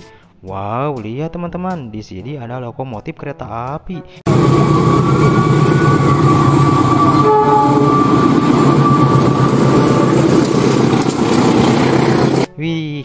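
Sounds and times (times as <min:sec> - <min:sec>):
locomotive engines rumbling: 0:04.3 - 0:12.5
long high train horn: 0:04.3 - 0:12.5.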